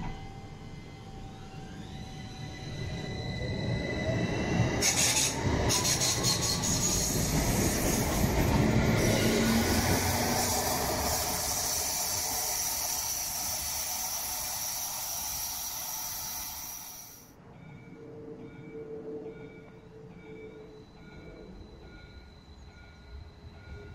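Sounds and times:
tram rolling rumble: 0.0 - 23.9
high squeal: 0.1 - 17.3.

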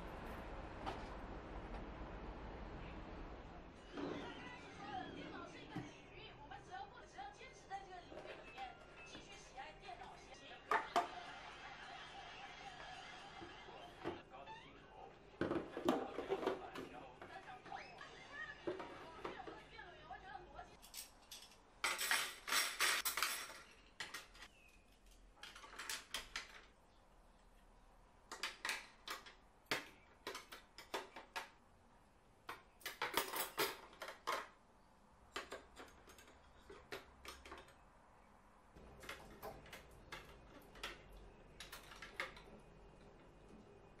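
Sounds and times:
metal cutlery clinking: 20.8 - 26.6, 32.8 - 34.4.

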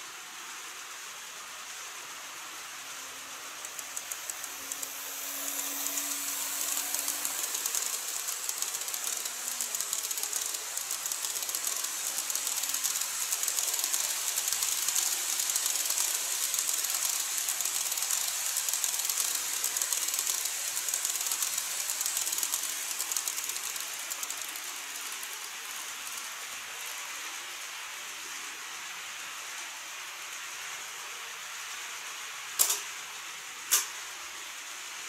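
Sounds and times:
model train wheels rattling on rail: 1.7 - 28.5, 32.4 - 33.0.

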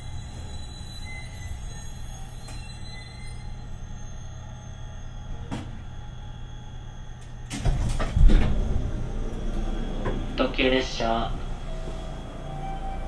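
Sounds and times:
train low hum: 0.0 - 13.0
sliding door rush and clunks: 7.5 - 10.4.

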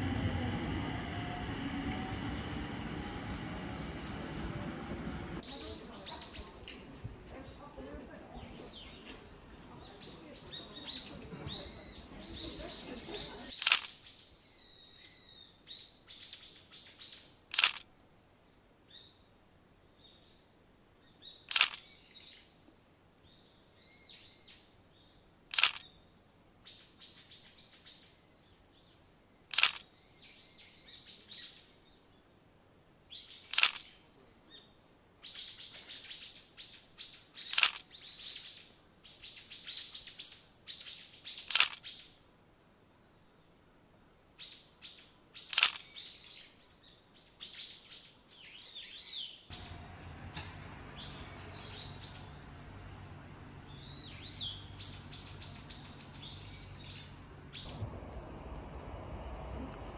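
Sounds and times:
small birds chirping: 0.0 - 42.4, 44.4 - 59.9
sharp click: 13.6 - 14.0, 17.5 - 17.9, 21.5 - 21.8, 25.5 - 25.9, 29.5 - 29.9, 33.5 - 33.9, 37.5 - 37.9, 41.4 - 41.9, 45.5 - 45.9.

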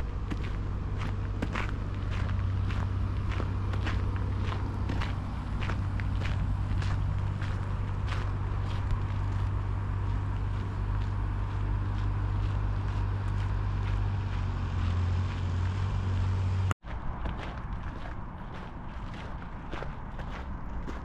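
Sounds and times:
large engine idling: 0.0 - 16.8
faint footsteps: 0.0 - 21.0.

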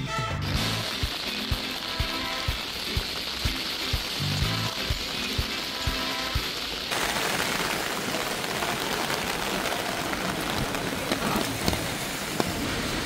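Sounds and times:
background music: 0.0 - 6.7
steady ambient hiss: 0.7 - 13.0.

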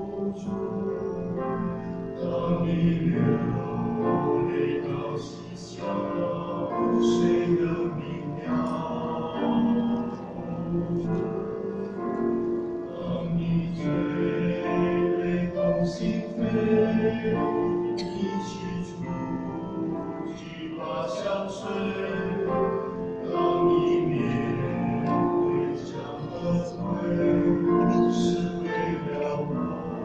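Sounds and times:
choir singing a hymn: 0.0 - 30.0.

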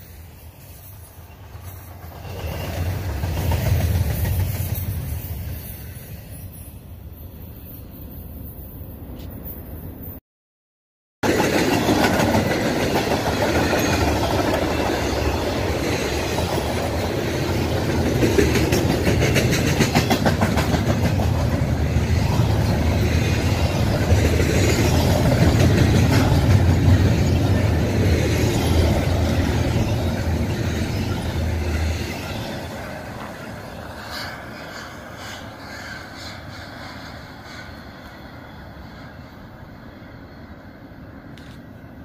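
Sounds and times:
freight train rumble: 0.0 - 10.2, 11.2 - 42.0
wheels clicking over rail joints: 11.3 - 33.4.

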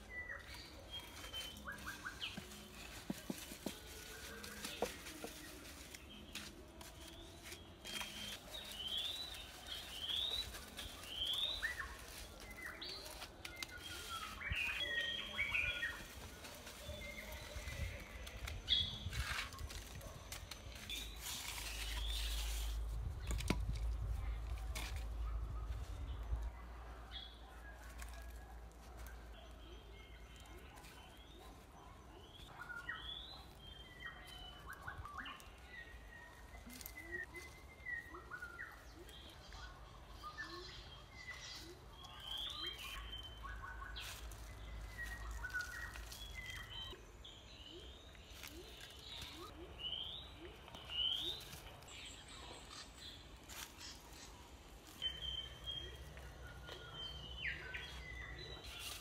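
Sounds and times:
birds chirping and whistling: 0.0 - 3.0, 6.0 - 22.9, 29.4 - 59.0.

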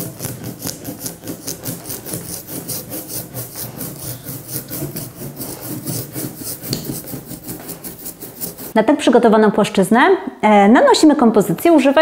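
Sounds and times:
brayer rolling ink on glass: 0.0 - 8.8.

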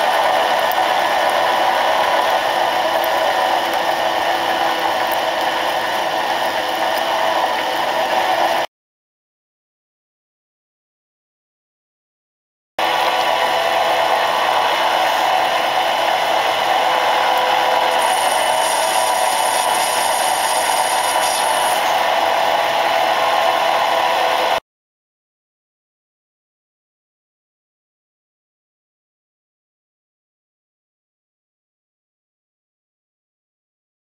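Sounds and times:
lathe drilling metal: 12.8 - 24.6.

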